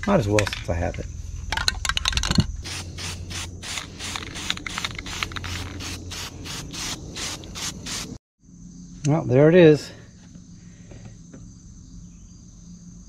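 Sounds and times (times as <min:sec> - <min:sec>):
aerosol can hissing bursts: 0:02.6 - 0:08.2.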